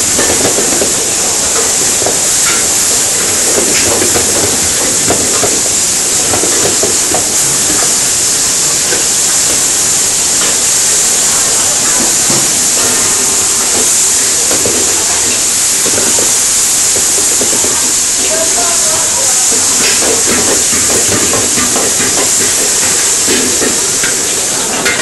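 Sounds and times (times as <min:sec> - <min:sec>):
meat sizzling in a hot pan: 0:00.0 - 0:25.0.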